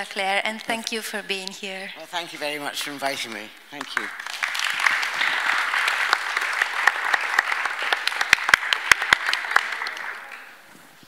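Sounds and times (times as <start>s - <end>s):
nearer louder claps: 3.8s - 10.6s
audience applauding: 3.8s - 10.7s.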